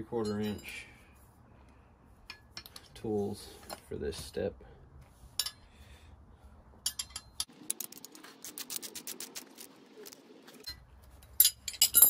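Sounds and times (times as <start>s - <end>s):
metal tools clinking: 0.1s - 0.9s, 5.4s - 5.6s, 6.8s - 8.0s, 10.6s - 12.0s.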